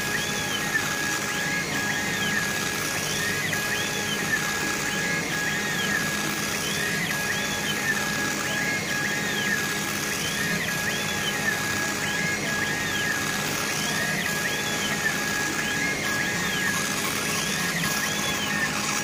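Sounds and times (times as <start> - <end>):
laser engraver head whining: 0.0 - 19.0.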